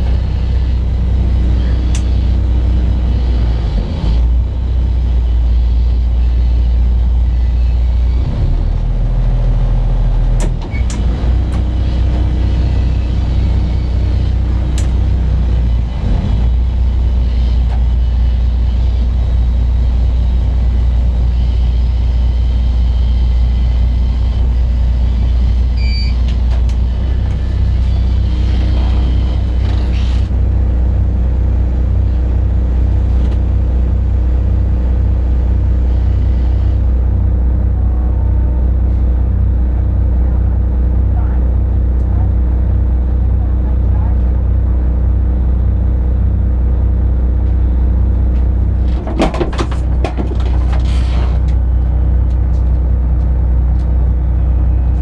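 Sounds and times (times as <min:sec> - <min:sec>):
diesel engine low rumble: 0:00.0 - 0:55.0
short high beep: 0:25.8 - 0:26.2.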